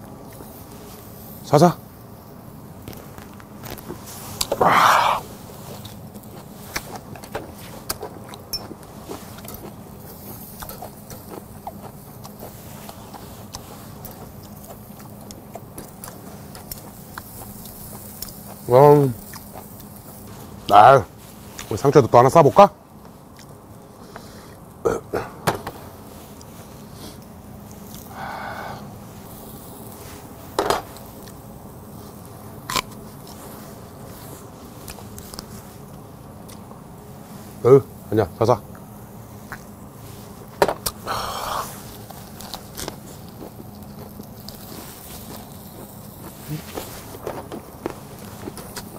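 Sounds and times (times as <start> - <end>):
meat sizzling on a grill: 0.0 - 24.5, 25.4 - 36.4, 37.0 - 48.9
low steady hiss: 0.0 - 48.9
chewing close up: 3.6 - 20.2, 23.3 - 23.8, 40.8 - 48.9.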